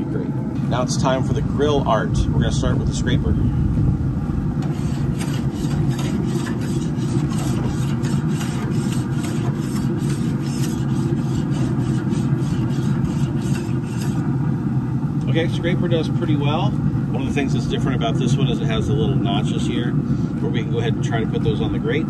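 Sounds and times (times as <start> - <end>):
steady low hum: 0.0 - 22.0
grill brush scraping grates: 4.6 - 14.5.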